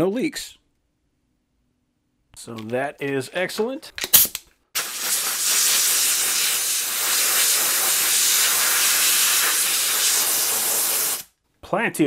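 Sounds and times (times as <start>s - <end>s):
air blow gun hissing: 4.8s - 11.3s.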